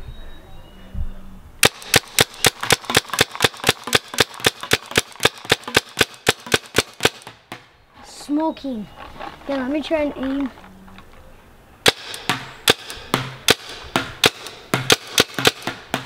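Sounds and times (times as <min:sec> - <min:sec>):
paintball gun firing rapidly: 0:01.6 - 0:07.3, 0:11.9 - 0:16.0.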